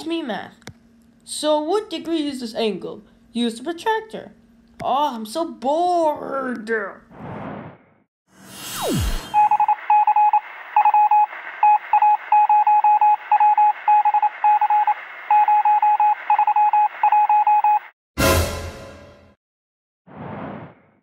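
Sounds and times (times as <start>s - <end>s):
loud whoosh and hit: 7.2s - 9.4s, 20.1s - 21.0s
short electronic beeps: 8.8s - 17.8s.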